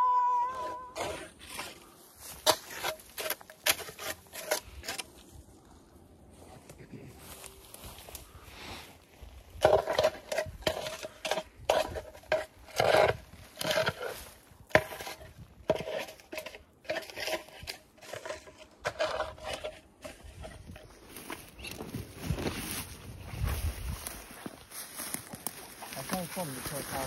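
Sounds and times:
branches scraping against clothing: 0.5s - 27.0s
footsteps in brush: 6.3s - 9.6s, 20.0s - 27.0s.

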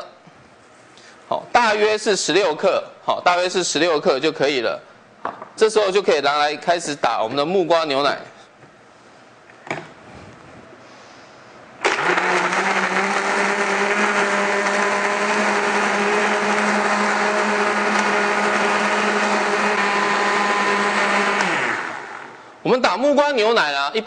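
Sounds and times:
blender running: 11.8s - 22.4s.

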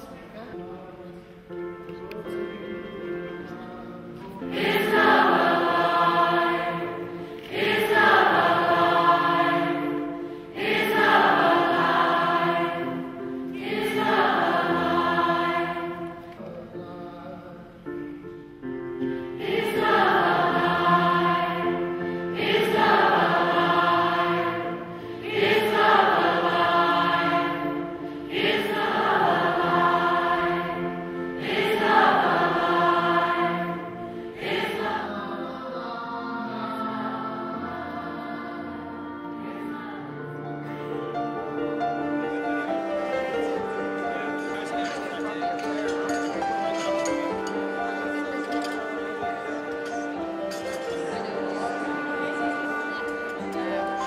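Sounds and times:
choir singing: 0.0s - 1.0s, 2.0s - 54.0s.

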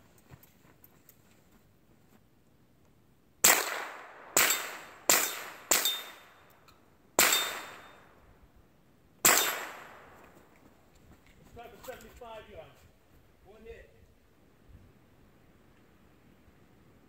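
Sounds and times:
rifle shots: 3.4s - 6.4s, 7.2s - 8.0s, 9.2s - 10.3s.

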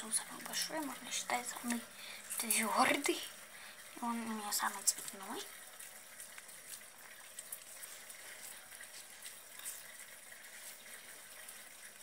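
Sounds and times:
slime squelching and crackling: 4.0s - 12.0s.

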